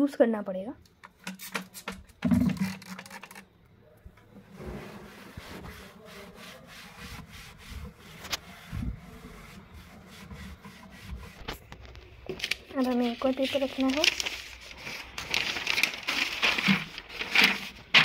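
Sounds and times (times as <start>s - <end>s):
spray bottle squirting: 1.1s - 3.4s
cloth rubbing in drawer: 4.4s - 11.7s.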